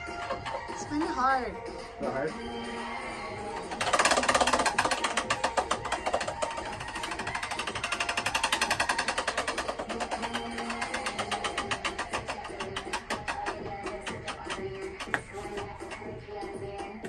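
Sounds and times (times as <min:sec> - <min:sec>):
prize wheel clicking: 0:03.4 - 0:15.1.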